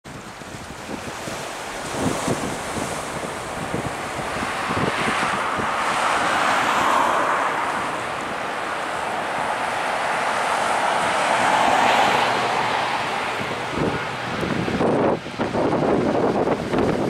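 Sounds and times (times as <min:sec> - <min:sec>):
wind buffeting microphone: 0:00.0 - 0:17.0
turboprop engines running: 0:07.5 - 0:17.0.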